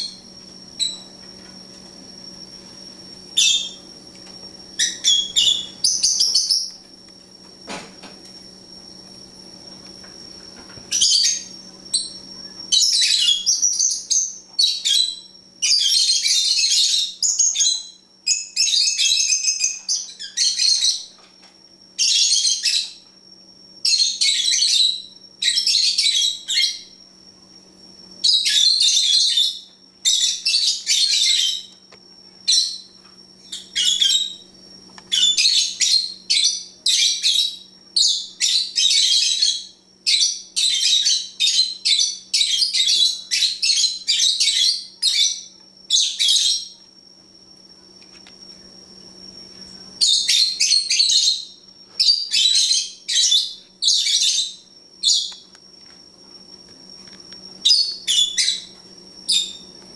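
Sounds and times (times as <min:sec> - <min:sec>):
faint steady hum: 0:00.0 - 0:59.9
lovebirds chirping: 0:04.8 - 0:06.8.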